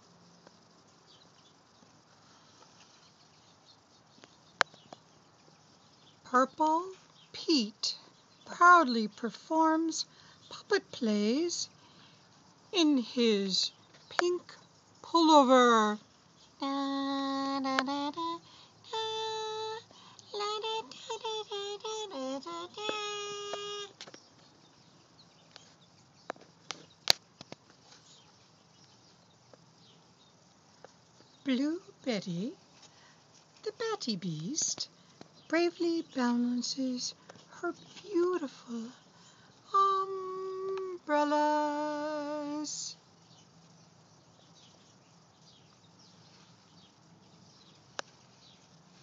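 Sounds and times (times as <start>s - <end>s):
faint high chirps: 12.8s - 27.0s.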